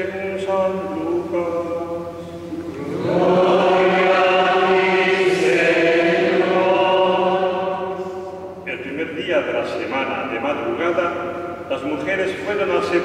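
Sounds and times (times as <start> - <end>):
man chanting: 0.0 - 2.2
choir chanting in church: 0.6 - 9.6.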